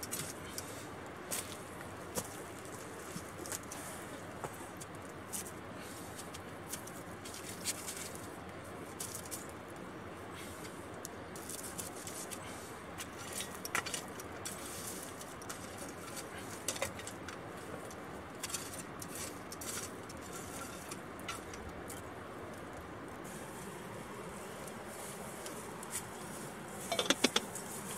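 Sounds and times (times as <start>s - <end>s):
steady background hiss: 0.0s - 27.9s
shovel scraping through charcoal: 13.1s - 17.0s, 18.4s - 21.6s
clinks and foil crinkles: 18.4s - 22.1s.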